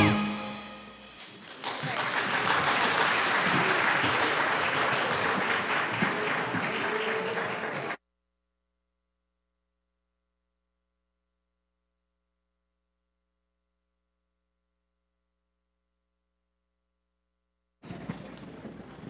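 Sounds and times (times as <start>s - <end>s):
song ending: 0.0s - 1.5s
audience applauding: 1.1s - 8.0s.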